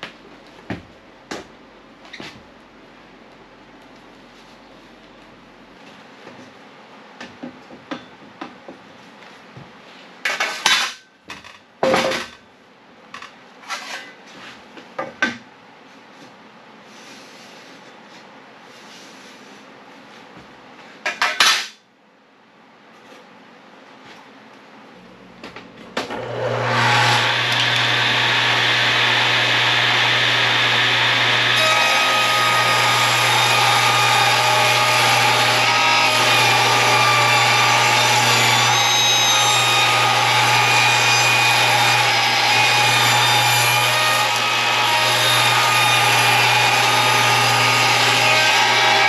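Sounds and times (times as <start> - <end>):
table saw cutting wood: 26.1 - 49.0.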